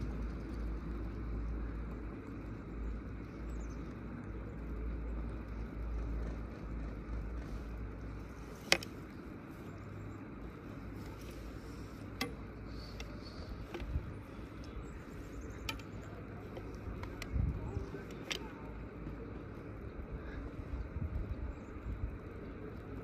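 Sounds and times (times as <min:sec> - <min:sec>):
chairlift low rumble: 0:00.0 - 0:23.0
sharp clicks: 0:15.4 - 0:17.4.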